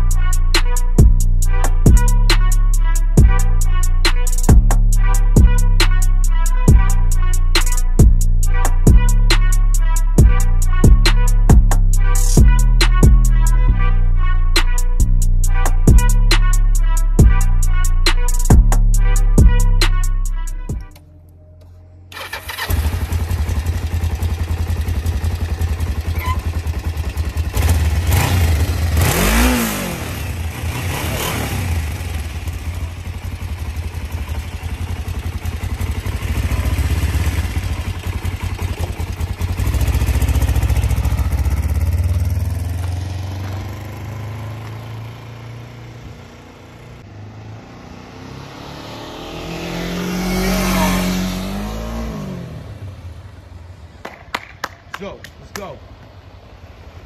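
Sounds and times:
motorcycle engine revving: 22.1 - 53.7
motorcycle passing by: 22.1 - 54.1.

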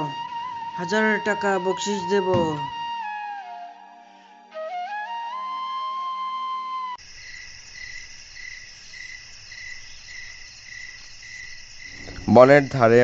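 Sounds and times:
flute melody: 0.0 - 7.0
crickets chirping: 7.0 - 13.0.

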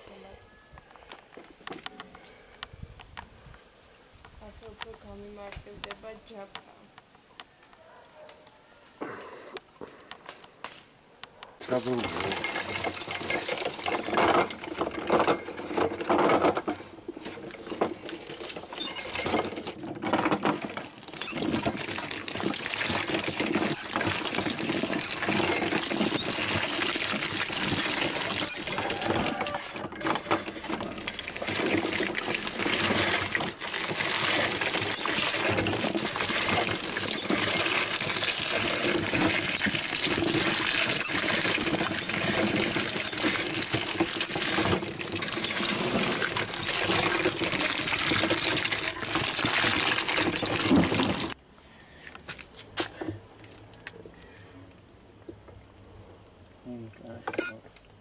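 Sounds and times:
grape crusher rattling and clicking: 11.6 - 51.4.

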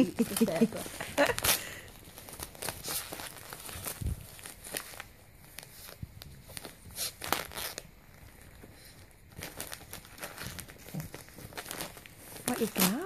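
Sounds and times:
wrapping paper crinkling and tearing: 0.0 - 13.0.

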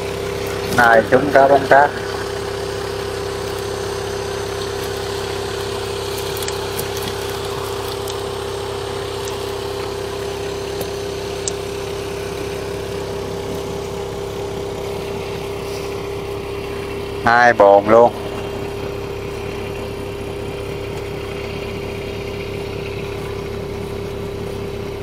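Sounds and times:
motor humming: 0.0 - 25.0.

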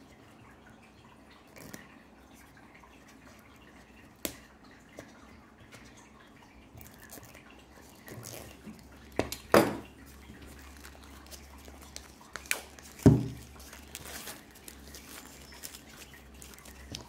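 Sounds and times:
plastic shrink wrap crinkling: 6.9 - 9.1, 10.0 - 17.0.

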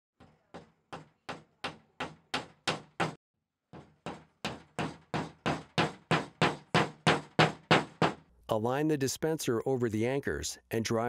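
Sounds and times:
hammer tapping wall anchors: 0.2 - 3.2.

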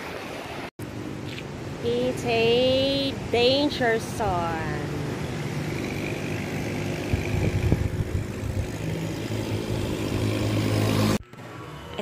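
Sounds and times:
vehicle engine running: 5.1 - 11.4.

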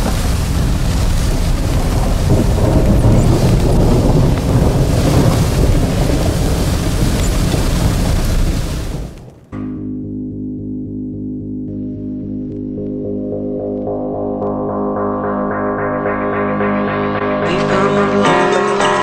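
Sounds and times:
heavy rain on vehicle roof: 0.0 - 9.5
deep continuous rumble: 0.0 - 16.0.

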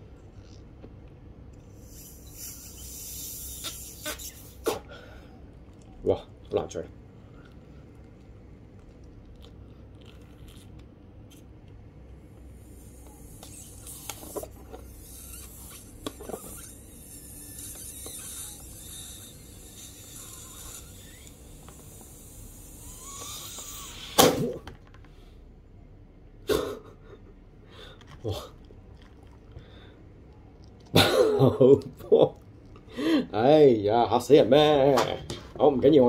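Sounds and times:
breath blowing up a balloon: 1.7 - 5.4, 12.4 - 24.6.

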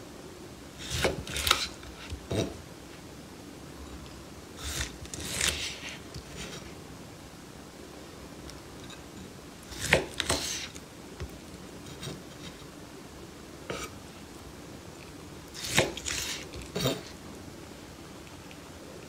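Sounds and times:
knife blade rasping through meat: 4.6 - 6.0, 15.6 - 17.0.

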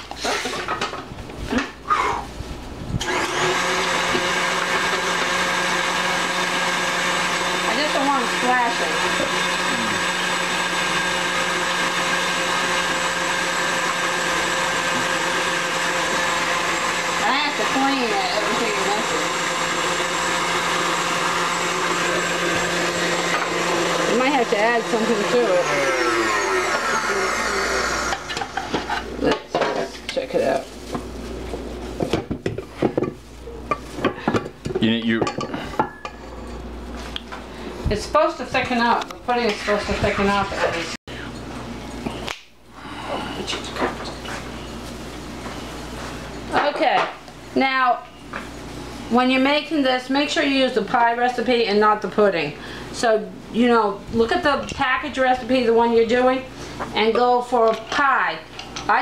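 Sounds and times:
stand mixer running: 3.0 - 29.3.

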